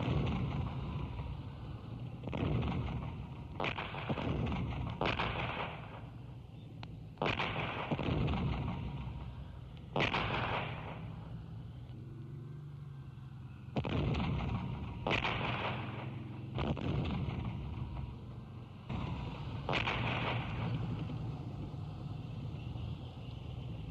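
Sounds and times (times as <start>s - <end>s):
artillery blasts: 0.0s - 6.4s, 7.1s - 11.8s, 13.7s - 21.3s.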